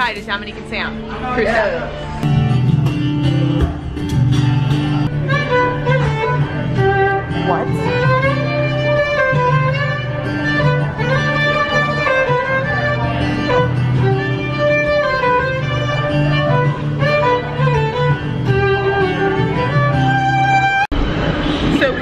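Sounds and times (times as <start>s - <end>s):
low bass notes: 1.0s - 22.0s
violin melody: 4.9s - 20.9s.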